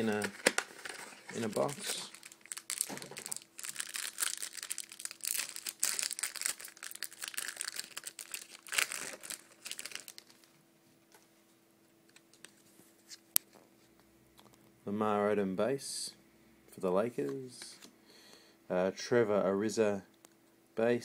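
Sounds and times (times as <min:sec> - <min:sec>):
cards being handled: 0:00.0 - 0:02.2
card pack wrapper tearing: 0:00.0 - 0:10.5.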